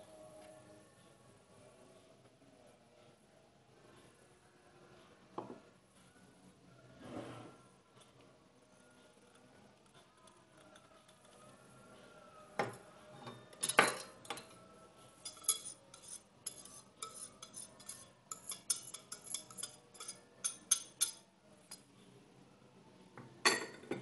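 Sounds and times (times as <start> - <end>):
whisk clinking against glass bowl: 15.2 - 21.2.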